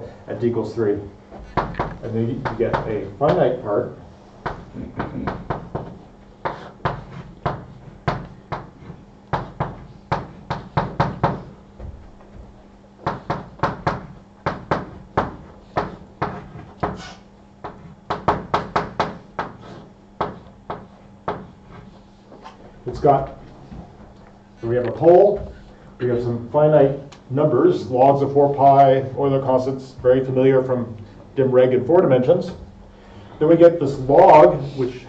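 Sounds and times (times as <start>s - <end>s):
chalk tapping on blackboard: 4.4s - 11.5s, 13.0s - 22.6s.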